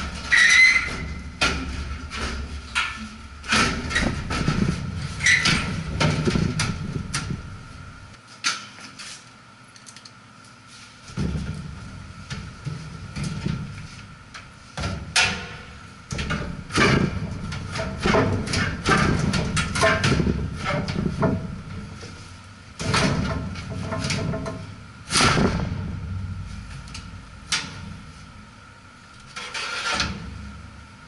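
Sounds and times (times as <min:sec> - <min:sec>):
sheet metal scraping and clunking: 0:00.0 - 0:07.9, 0:29.3 - 0:30.4
metal knocks and rattles: 0:00.0 - 0:08.0, 0:11.1 - 0:28.2.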